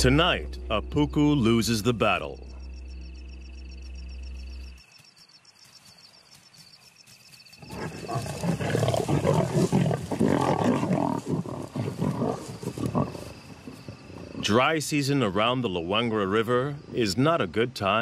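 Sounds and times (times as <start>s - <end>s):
crickets chirping: 0.0s - 18.0s
lions snarling and growling: 7.6s - 14.5s.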